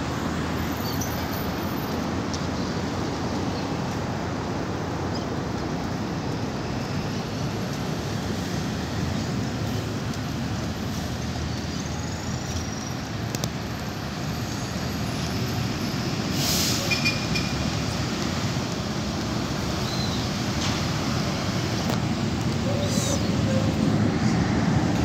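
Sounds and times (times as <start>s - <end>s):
road traffic rumble: 0.0s - 25.0s
short hiss: 16.3s - 16.9s.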